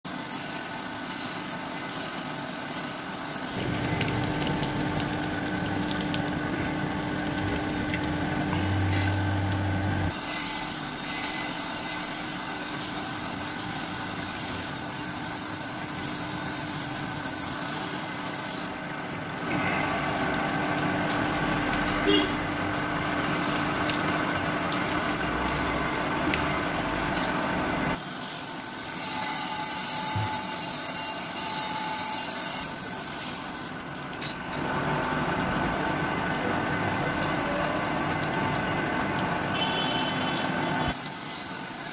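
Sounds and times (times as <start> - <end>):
motor hum: 3.6 - 11.4
coolant spray hissing: 9.9 - 18.9.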